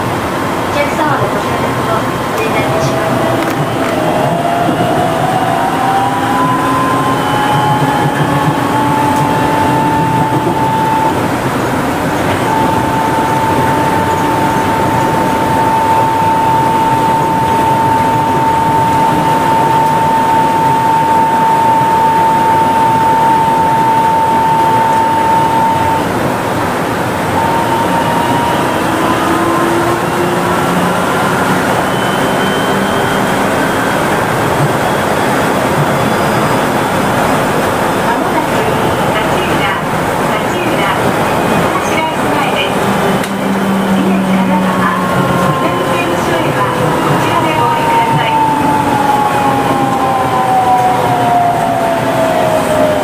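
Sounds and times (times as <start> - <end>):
train rolling noise: 0.0 - 53.0
train motor whine: 1.8 - 53.0.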